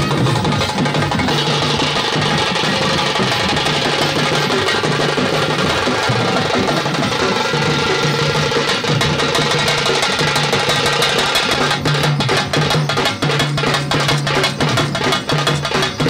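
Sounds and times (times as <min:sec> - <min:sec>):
drums beating loud rhythm: 0:00.0 - 0:16.0.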